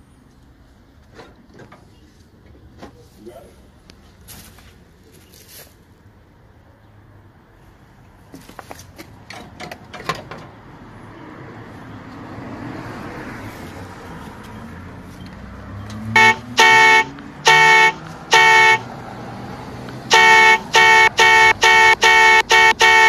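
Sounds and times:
car driving past: 0:10.5 - 0:20.3
car horn honking: 0:16.1 - 0:19.0, 0:20.0 - 0:23.0.

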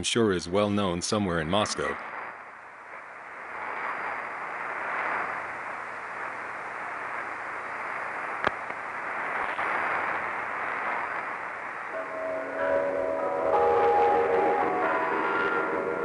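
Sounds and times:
radio static hiss: 0:00.0 - 0:16.0.

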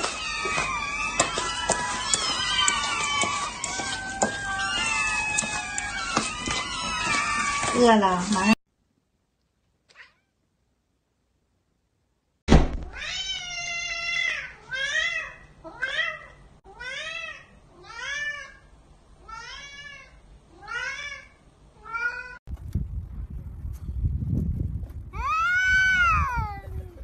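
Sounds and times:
cat meowing: 0:09.9 - 0:10.4, 0:12.9 - 0:18.6.

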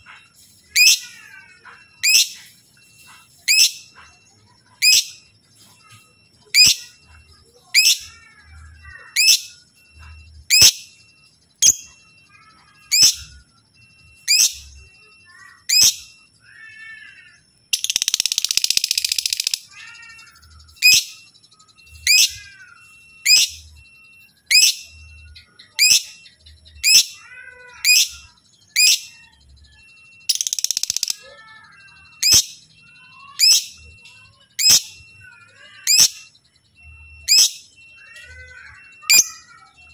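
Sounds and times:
bird chirping: 0:00.0 - 0:39.9
bird chattering: 0:21.9 - 0:23.7, 0:24.5 - 0:29.4, 0:30.2 - 0:39.9.

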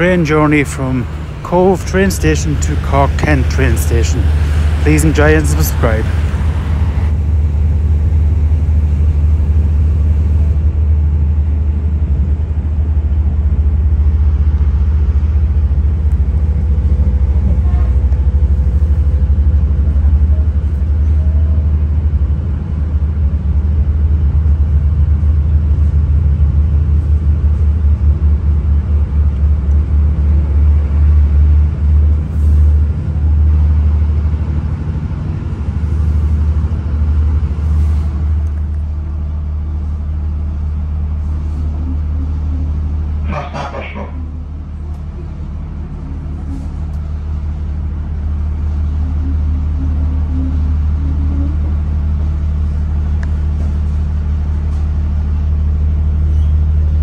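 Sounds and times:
train rumble from inside carriage: 0:00.0 - 0:57.0.

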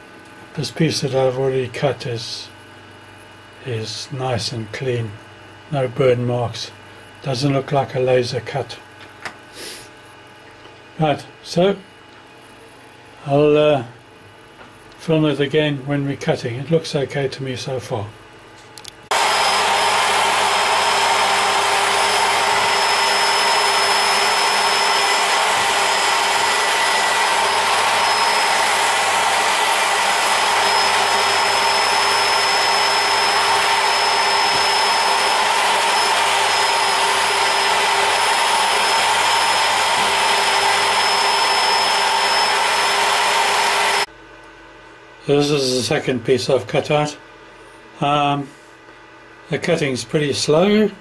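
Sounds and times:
router bit cutting plywood: 0:19.1 - 0:44.1
router motor whine: 0:19.1 - 0:44.1.

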